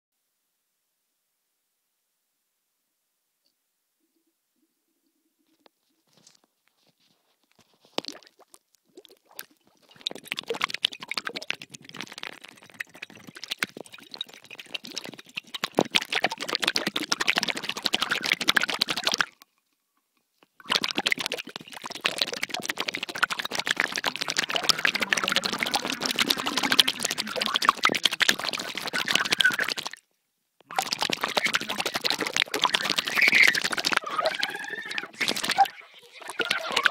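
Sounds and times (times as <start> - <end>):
underwater air bubbling: 8.9 - 19.3, 20.6 - 30.0, 30.7 - 36.9.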